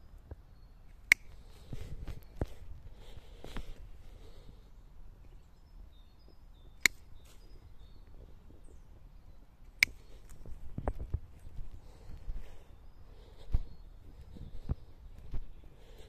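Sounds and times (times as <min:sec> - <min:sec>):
pruning shears snipping: 0:00.9 - 0:01.4, 0:06.8 - 0:07.4, 0:09.7 - 0:10.4.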